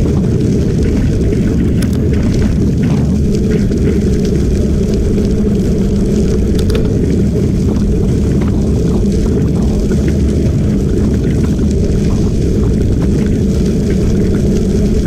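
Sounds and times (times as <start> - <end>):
tyres rumbling on gravel: 0.0 - 15.0
wind buffeting microphone: 0.0 - 15.0
faint clicks: 6.2 - 7.0.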